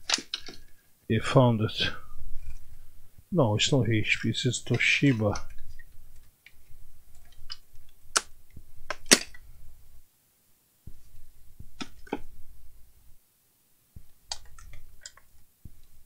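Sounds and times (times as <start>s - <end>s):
plastic items and cables clicking: 0.0s - 0.8s.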